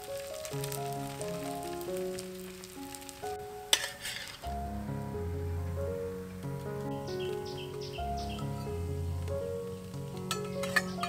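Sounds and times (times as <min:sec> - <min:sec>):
background music: 0:00.0 - 0:11.0
oil sizzling: 0:00.0 - 0:11.0
metal spatula clinking on wok: 0:03.7 - 0:04.4, 0:10.3 - 0:11.0.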